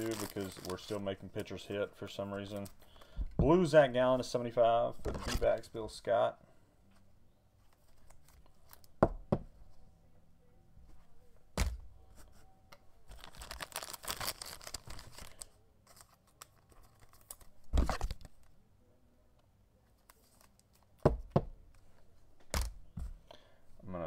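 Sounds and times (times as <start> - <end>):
plastic card sleeve crinkling: 0.0 - 3.1, 7.7 - 9.0, 13.1 - 18.5, 20.0 - 21.0.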